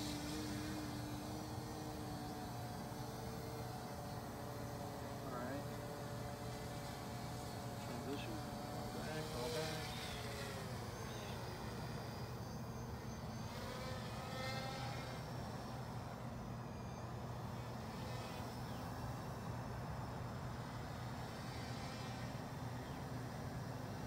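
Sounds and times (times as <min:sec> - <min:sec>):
drone propellers humming: 0:00.0 - 0:24.0.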